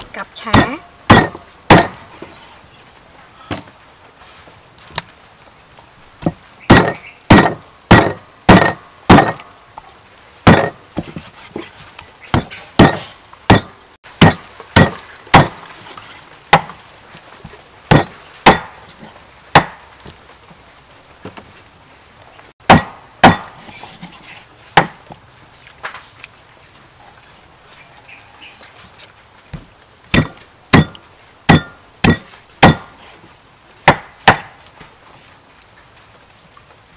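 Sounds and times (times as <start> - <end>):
cleaver chopping on wooden block: 0.5 - 2.0, 6.2 - 9.4, 10.5 - 10.8, 12.3 - 15.6, 16.5 - 16.8, 17.9 - 18.7, 19.5 - 19.8, 22.7 - 23.5, 24.8 - 25.0, 30.1 - 32.9, 33.8 - 34.5.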